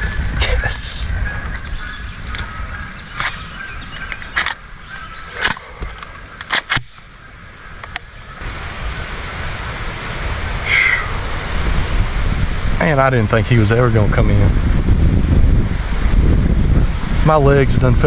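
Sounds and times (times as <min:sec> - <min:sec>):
shotgun handling clicks: 0:04.0 - 0:04.6, 0:05.3 - 0:07.1, 0:07.8 - 0:08.1.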